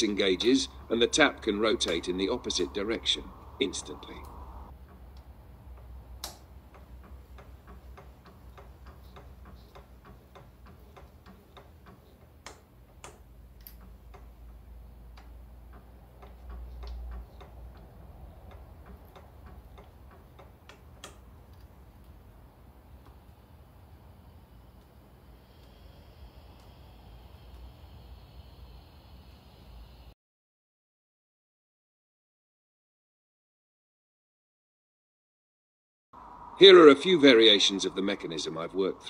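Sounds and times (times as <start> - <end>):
ratcheting tap wrench clicking: 4.8 - 22.3.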